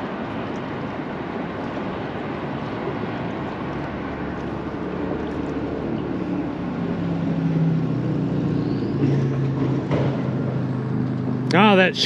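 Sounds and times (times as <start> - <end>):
wind and water wash: 0.0 - 8.6
motorboat engine humming: 0.0 - 12.0.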